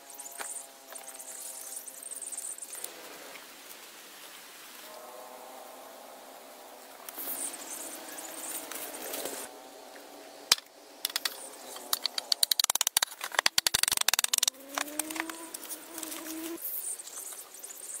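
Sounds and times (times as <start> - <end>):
wooden logs knocking: 10.5 - 15.4
drawn-out rising tone: 11.9 - 16.6.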